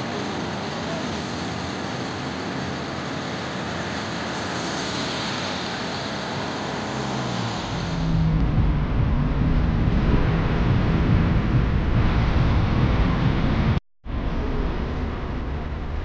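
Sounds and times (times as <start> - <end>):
tyres hissing on wet road: 0.0 - 8.0
passing cars and trolleybuses: 0.0 - 16.0
low rumble: 7.6 - 16.0.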